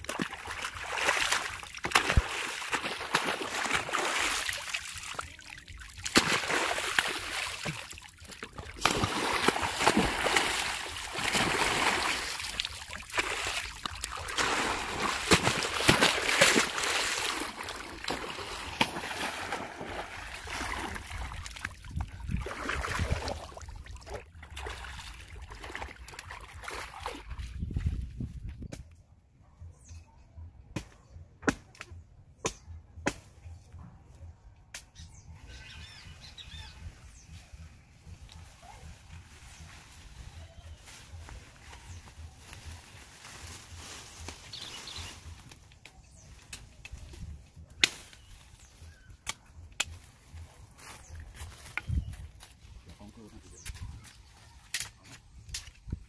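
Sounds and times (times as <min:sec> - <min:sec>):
undergrowth rustling: 0:00.0 - 0:21.5, 0:36.3 - 0:55.9
water splashing around wading legs: 0:00.0 - 0:27.9
branches cracking: 0:40.7 - 0:52.7.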